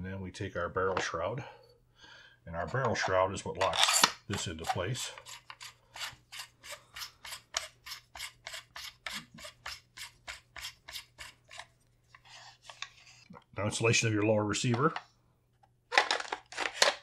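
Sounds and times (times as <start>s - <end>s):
threads rasping while screwing on: 3.7s - 13.3s.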